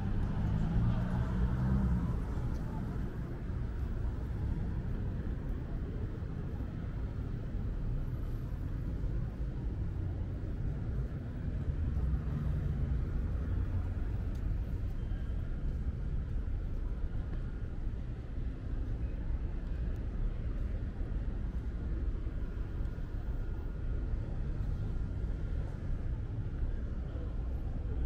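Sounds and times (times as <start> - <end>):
vehicle engine passing: 0.0 - 2.9
traffic hum: 0.0 - 28.0.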